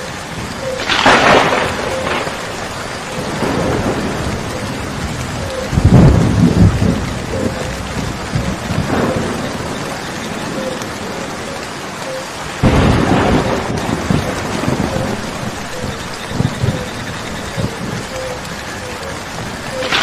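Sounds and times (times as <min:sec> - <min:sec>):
steady rain falling: 0:00.0 - 0:20.0
thunder clap crackling: 0:00.0 - 0:20.0
thunder rumbling: 0:00.0 - 0:20.0.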